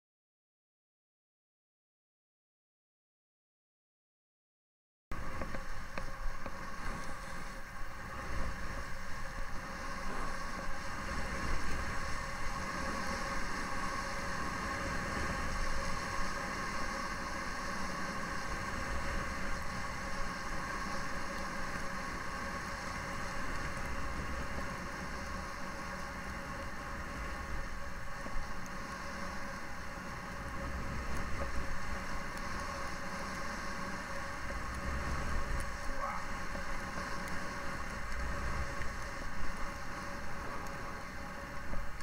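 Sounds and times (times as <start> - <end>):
skis hissing on packed snow: 5.7 - 42.0.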